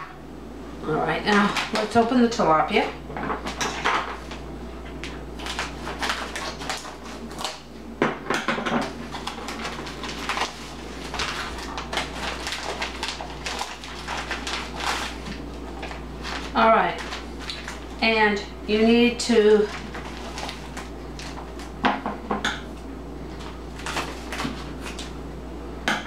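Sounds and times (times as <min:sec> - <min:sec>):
plastic wrapper crinkling: 0:01.3 - 0:02.1, 0:05.0 - 0:07.6, 0:08.9 - 0:18.0, 0:19.6 - 0:21.8, 0:23.3 - 0:25.2.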